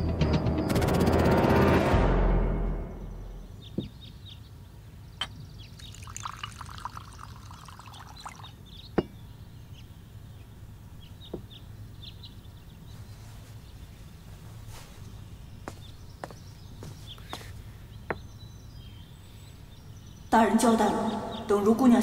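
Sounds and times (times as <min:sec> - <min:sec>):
faint bird chirps: 0:03.0 - 0:22.0
tea pouring into cup: 0:05.8 - 0:08.6.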